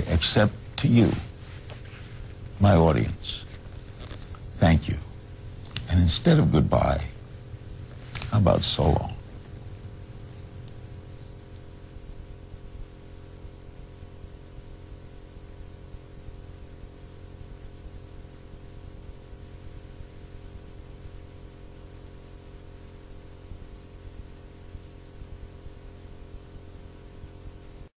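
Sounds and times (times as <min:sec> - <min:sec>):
even hiss: 0:00.0 - 0:05.2
steady low hum: 0:00.0 - 0:27.9.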